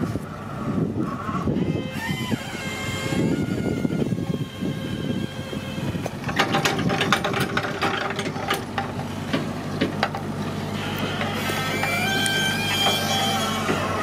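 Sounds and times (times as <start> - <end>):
machine engine humming: 0.0 - 14.0
rapid metallic clicking and clattering: 6.2 - 10.2.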